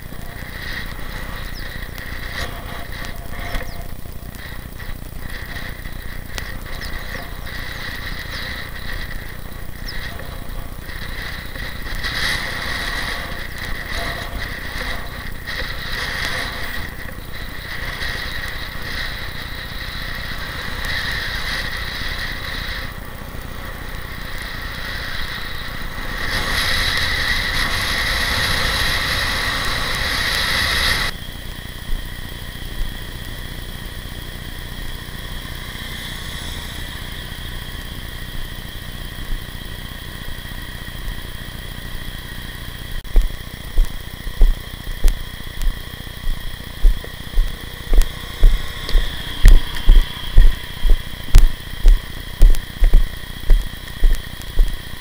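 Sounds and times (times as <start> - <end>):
wind rushing over microphone: 0.0 - 31.1, 43.0 - 55.0
tyre noise on asphalt: 0.0 - 55.0.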